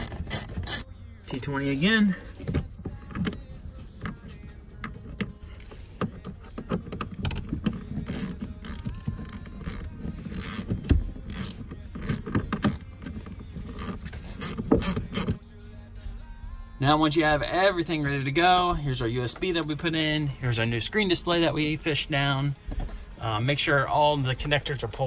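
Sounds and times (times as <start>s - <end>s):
screwdriver clicks and scrapes: 4.0s - 15.4s.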